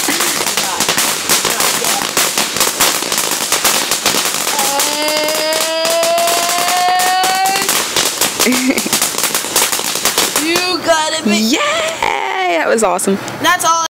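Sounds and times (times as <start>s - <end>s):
firework crackling: 0.0s - 13.4s.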